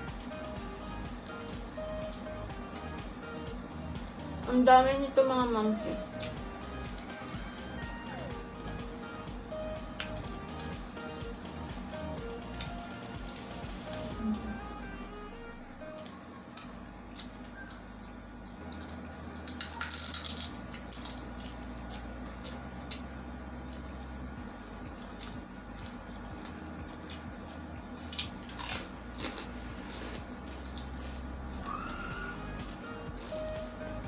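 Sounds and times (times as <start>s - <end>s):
person chewing food: 9.8s - 14.6s, 15.8s - 33.8s.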